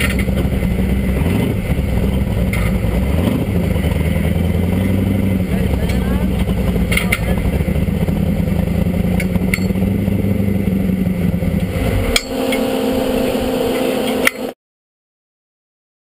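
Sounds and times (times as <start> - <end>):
sharp metallic clanks: 0.0 - 0.6, 5.8 - 7.6, 9.2 - 9.8, 11.9 - 12.7
engine running: 0.0 - 14.6.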